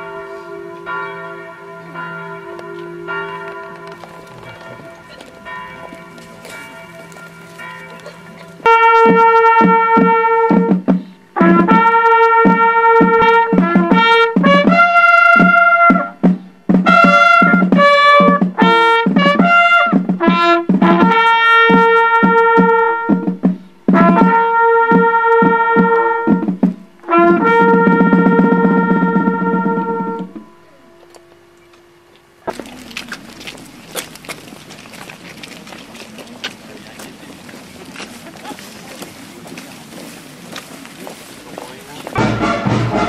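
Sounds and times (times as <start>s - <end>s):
trumpet playing military call: 3.0s - 32.4s, 42.1s - 43.0s.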